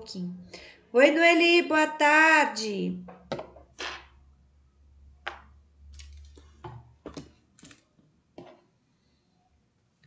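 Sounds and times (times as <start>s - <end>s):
paint pots clicking on table: 5.2s - 7.8s.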